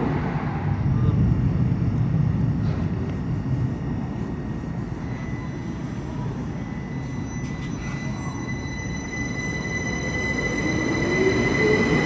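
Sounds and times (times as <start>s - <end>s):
electric train rumbling: 0.0s - 12.0s
high wheel squeal: 5.0s - 12.0s.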